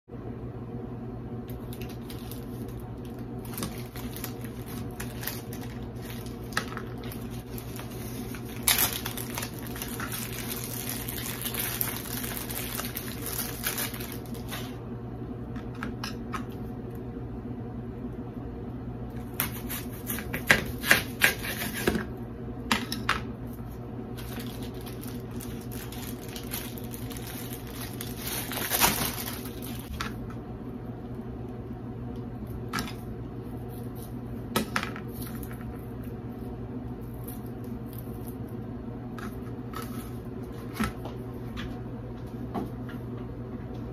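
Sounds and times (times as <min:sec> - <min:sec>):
steady low hum: 0:00.1 - 0:43.9
onion skin rustling and scraping: 0:01.5 - 0:14.8, 0:19.2 - 0:22.1, 0:23.5 - 0:30.2, 0:35.0 - 0:41.4.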